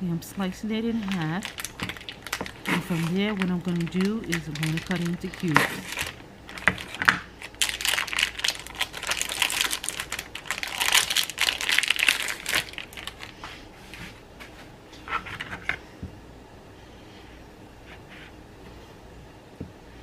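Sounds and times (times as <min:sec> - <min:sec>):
plastic wrapper crinkling: 0:00.8 - 0:13.4.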